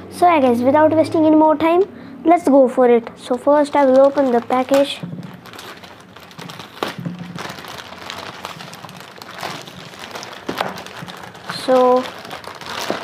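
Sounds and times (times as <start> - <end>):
plastic bag crinkling: 3.2 - 13.0.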